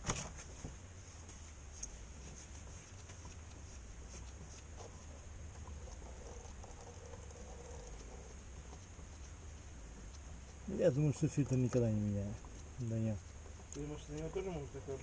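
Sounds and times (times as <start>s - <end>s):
low steady hum: 0.0s - 15.0s
plastic tray patter and ticks: 10.0s - 15.0s.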